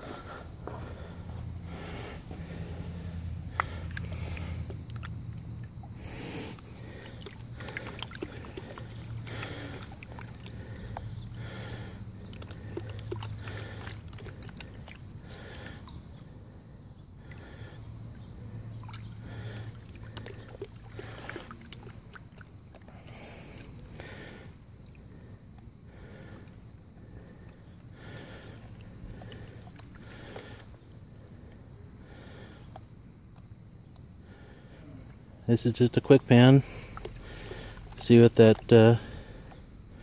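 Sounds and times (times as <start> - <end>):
water sloshing in a plastic pan: 3.5 - 16.2, 18.1 - 23.9, 28.2 - 30.8, 36.2 - 39.6.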